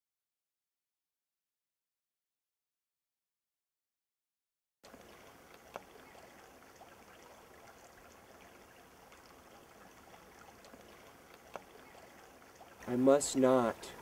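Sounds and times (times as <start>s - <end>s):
small ticks: 4.8s - 12.9s
creek trickling: 4.8s - 14.0s.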